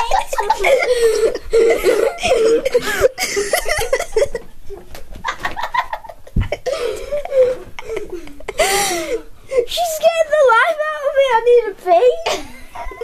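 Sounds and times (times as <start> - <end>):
children giggling: 0.0 - 9.2, 12.2 - 13.0
rustling: 3.7 - 8.2
dull thump: 6.3 - 6.6.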